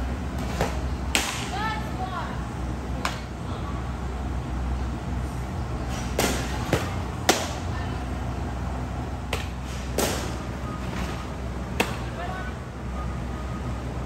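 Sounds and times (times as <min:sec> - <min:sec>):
balls smacking into mitts: 0:06.1 - 0:07.6, 0:09.3 - 0:10.4, 0:11.8 - 0:12.1.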